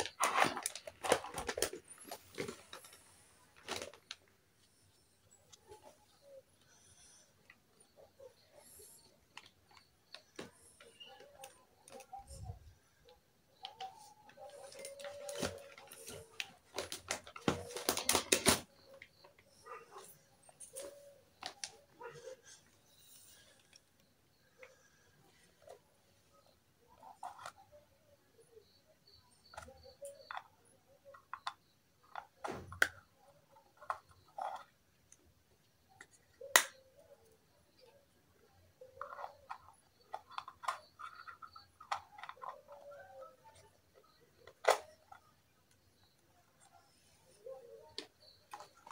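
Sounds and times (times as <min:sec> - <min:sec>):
plastic toy dishes clicking: 0:29.5 - 0:33.0, 0:38.8 - 0:45.8
plastic toy lid clicks: 0:36.0 - 0:36.8, 0:44.4 - 0:45.2.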